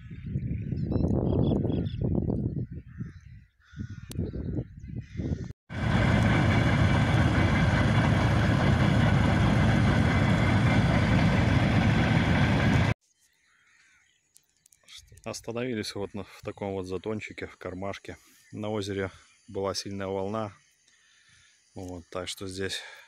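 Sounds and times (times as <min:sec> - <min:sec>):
crow cawing: 0:02.9 - 0:04.1
freight train rumbling: 0:05.7 - 0:13.0.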